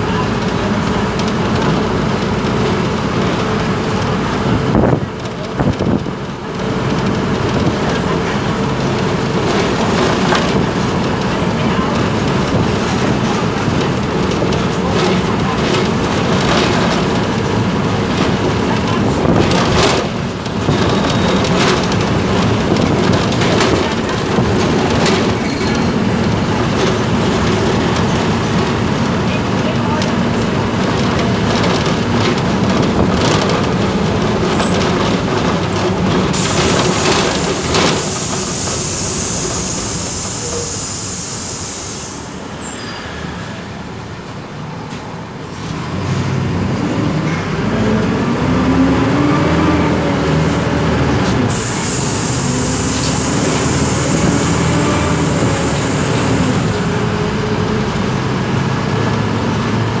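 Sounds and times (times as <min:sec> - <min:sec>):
bus engine running: 0:00.0 - 1:00.0
road noise and rattling: 0:00.0 - 1:00.0
high hiss: 0:36.5 - 0:42.4.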